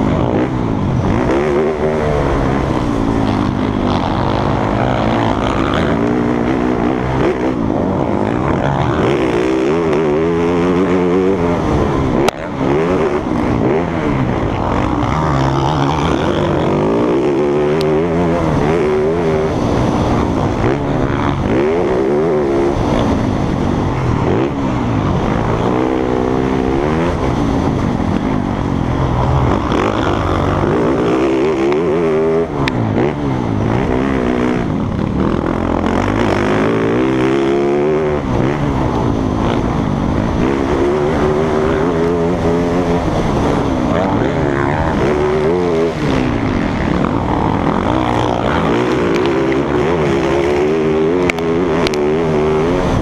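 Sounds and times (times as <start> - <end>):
motocross bike engines racing: 0.0 - 53.0.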